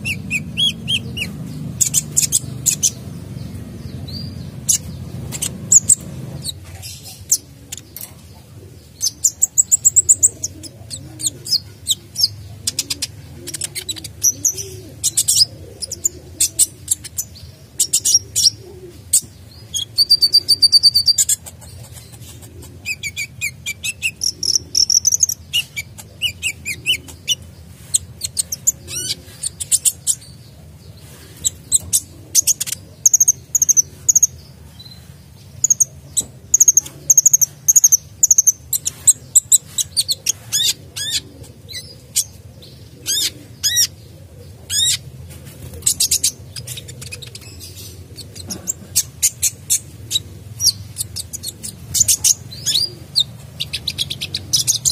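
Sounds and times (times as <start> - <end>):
sunbird singing: 0.0 - 54.9.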